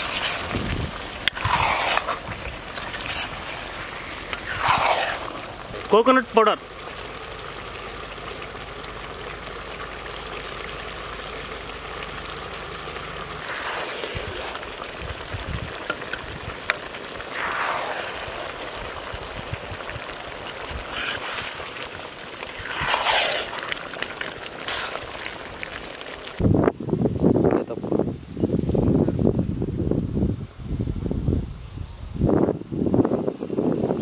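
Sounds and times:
curry simmering and bubbling: 0.0 - 26.4
ladle scraping through curry: 1.3 - 5.6, 20.8 - 21.6, 22.5 - 23.7, 24.6 - 25.2.

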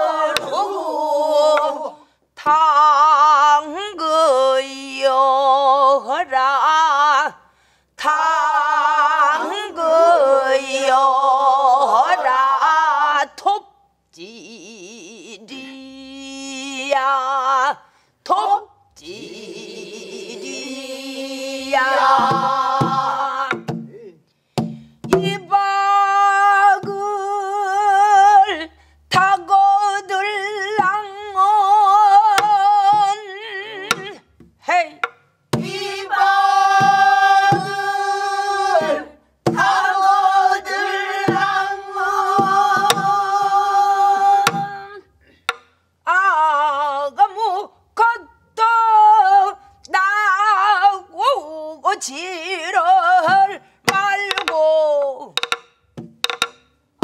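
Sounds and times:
person singing with vibrato: 0.0 - 13.6, 14.2 - 24.1, 25.1 - 45.2, 46.0 - 55.4
barrel drum strokes: 22.0 - 23.9, 33.9 - 38.1, 38.7 - 39.8, 40.6 - 43.6.

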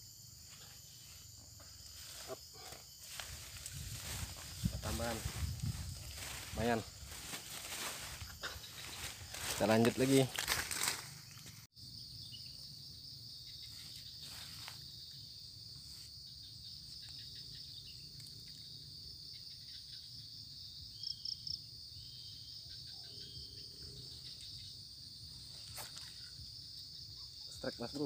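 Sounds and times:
insects droning: 0.0 - 28.0.

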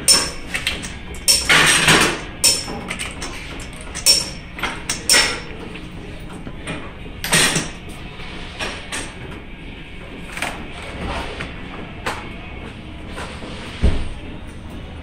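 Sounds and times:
metal tools clanking: 0.0 - 8.0.

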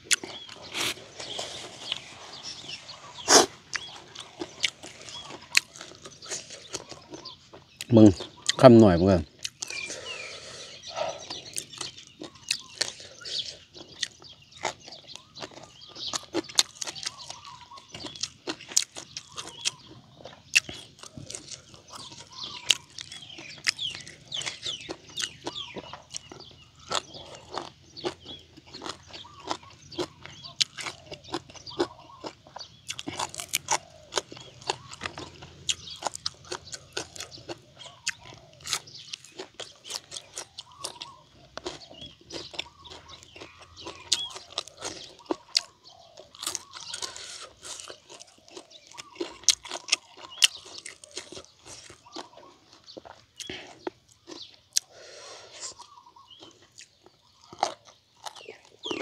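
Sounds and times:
birds chirping faintly: 0.0 - 59.0
close-up chewing and crunching: 0.0 - 59.0.

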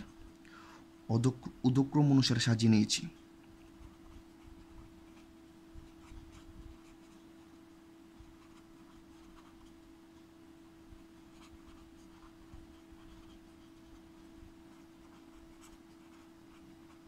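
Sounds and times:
pen scratching on paper: 3.6 - 17.0.

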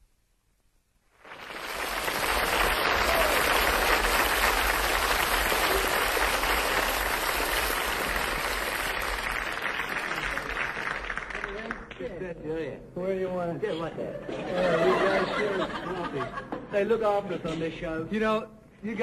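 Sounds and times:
audience applauding: 1.2 - 12.0.

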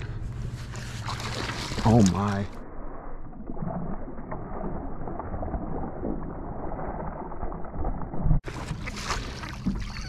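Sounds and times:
wind: 0.0 - 3.2, 4.2 - 10.0
water noise around boat: 0.0 - 10.0.

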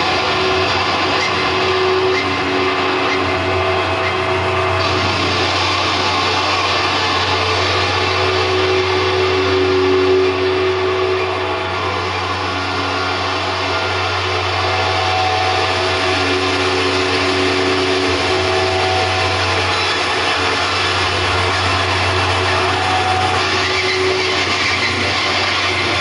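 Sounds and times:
hiss and static noise: 0.0 - 26.0
low electronic drone: 0.0 - 26.0.

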